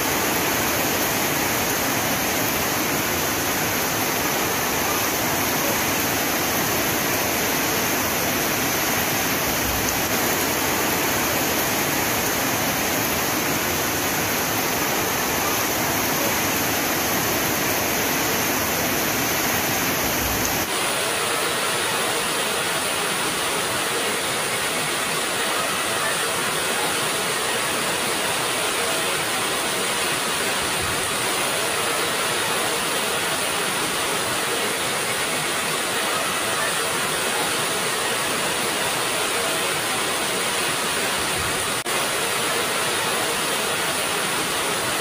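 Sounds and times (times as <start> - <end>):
heavy rain hissing: 0.0 - 45.0.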